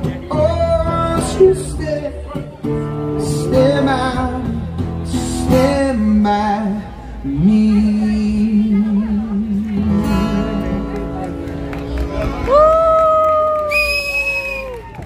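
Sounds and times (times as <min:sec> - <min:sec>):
man singing: 0:00.0 - 0:10.9
acoustic guitar: 0:00.0 - 0:14.9.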